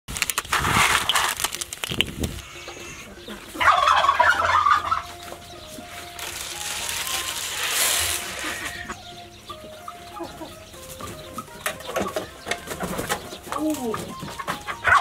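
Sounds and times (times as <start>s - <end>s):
clicks and rustling: 0.1s - 2.4s
chickens clucking: 0.6s - 15.0s
turkey gobbling: 2.4s - 15.0s.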